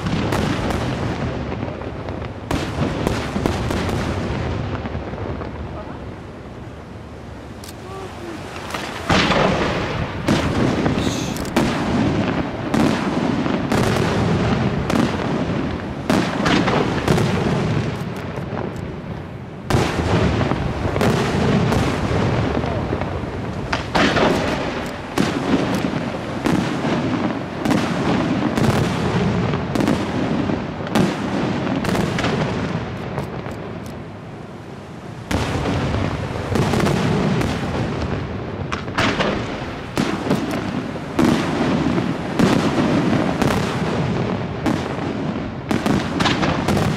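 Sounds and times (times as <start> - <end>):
firework crackling: 0.0 - 46.9
firework shells bursting: 7.5 - 13.1, 23.5 - 26.6, 38.7 - 41.5.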